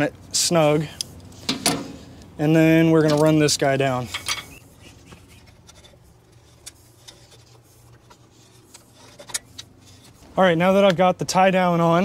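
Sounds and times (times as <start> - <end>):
metal scraping: 3.0 - 10.4.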